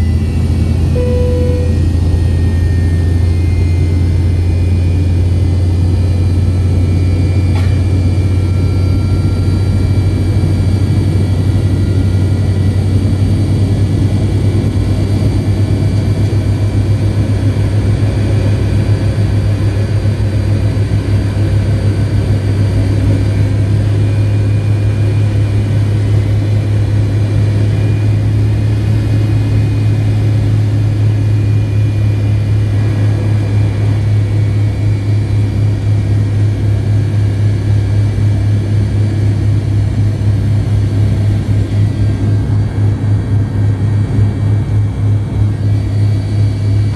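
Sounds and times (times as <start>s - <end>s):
faint high whines: 0.0s - 13.1s
airplane cabin engine drone: 0.0s - 46.9s.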